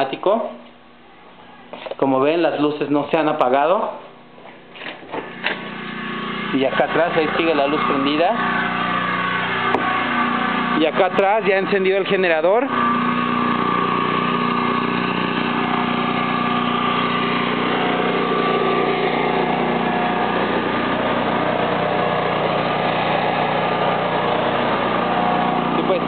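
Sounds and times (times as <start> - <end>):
generator engine droning: 5.2 - 26.0.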